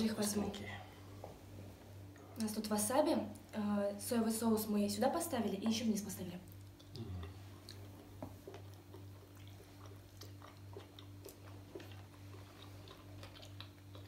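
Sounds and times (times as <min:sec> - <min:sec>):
people chewing: 0:06.5 - 0:14.0.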